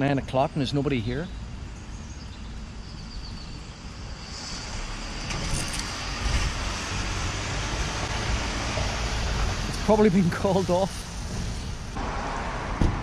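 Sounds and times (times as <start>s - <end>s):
vehicle engine rumble: 0.0s - 13.0s
tyre hiss: 4.1s - 6.1s.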